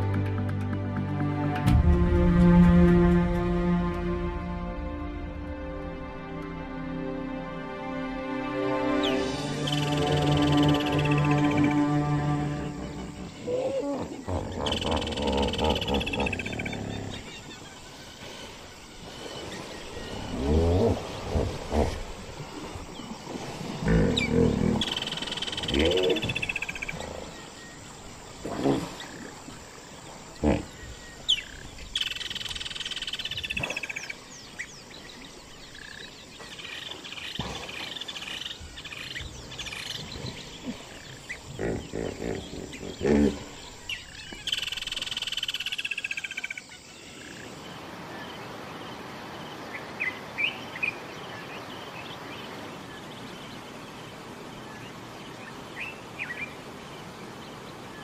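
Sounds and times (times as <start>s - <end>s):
quiet riverside background: 0.0s - 58.0s
hippos grunting and honking: 9.6s - 17.5s, 20.1s - 22.7s, 23.6s - 27.3s, 28.4s - 29.4s, 30.3s - 31.1s, 39.2s - 44.2s.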